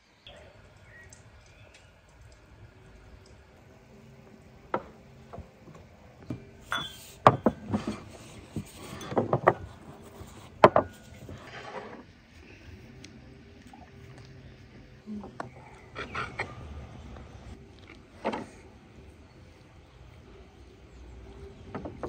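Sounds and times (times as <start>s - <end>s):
tableware clinking on wooden table: 6.3s - 9.8s, 10.6s - 12.0s.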